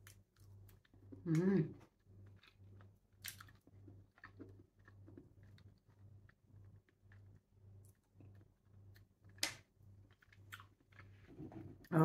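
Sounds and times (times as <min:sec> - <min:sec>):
chewing with wet mouth clicks: 0:02.2 - 0:09.5, 0:10.1 - 0:11.2.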